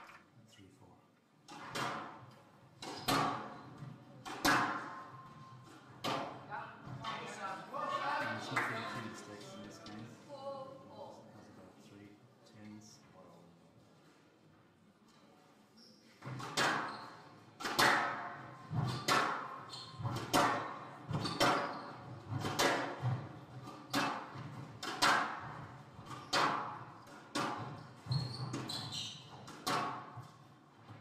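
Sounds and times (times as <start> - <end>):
squash ball echoing cracks: 4.2 - 5.1, 17.6 - 21.7, 22.3 - 27.8.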